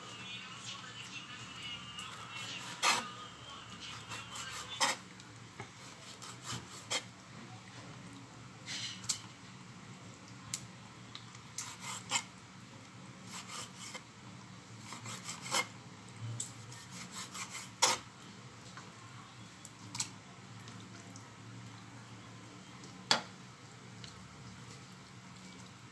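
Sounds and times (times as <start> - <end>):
knife slicing meat on wooden board: 2.4 - 3.1, 5.8 - 7.1.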